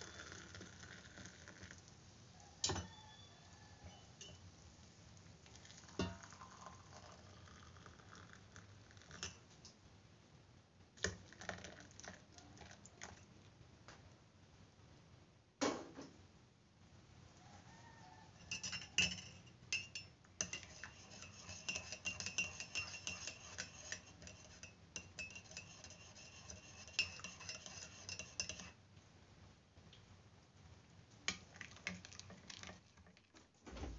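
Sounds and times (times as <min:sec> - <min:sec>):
spoon clinking against mug: 0:02.6 - 0:03.1, 0:03.9 - 0:04.4, 0:05.6 - 0:07.2, 0:18.4 - 0:28.8.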